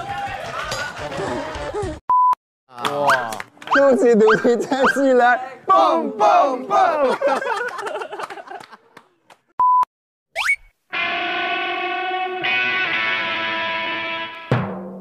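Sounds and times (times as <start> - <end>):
voices and laughter: 4.0 - 5.2, 6.6 - 9.3.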